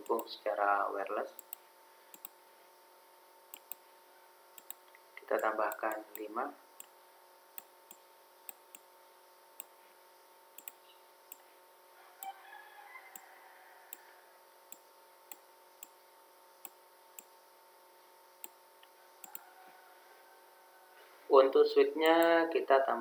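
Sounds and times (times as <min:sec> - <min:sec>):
computer mouse clicks: 0:00.0 - 0:00.3, 0:01.4 - 0:02.4, 0:03.5 - 0:03.8, 0:04.6 - 0:06.9, 0:10.6 - 0:11.4, 0:18.4 - 0:19.5
faint steady hum: 0:00.0 - 0:23.0.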